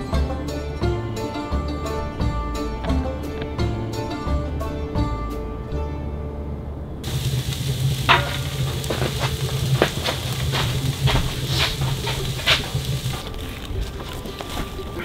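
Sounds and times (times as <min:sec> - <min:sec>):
low steady hum: 0:00.0 - 0:15.0
wood fire crackling and popping: 0:07.0 - 0:15.0.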